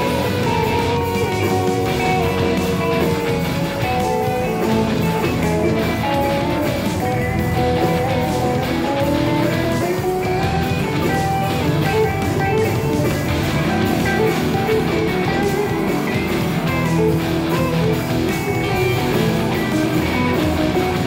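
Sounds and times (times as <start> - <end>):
live band with guitars and bass: 0.0 - 21.0.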